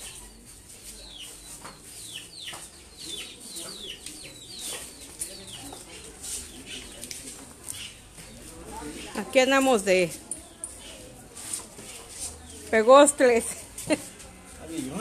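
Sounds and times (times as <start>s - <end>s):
birds chirping: 0.0s - 11.2s.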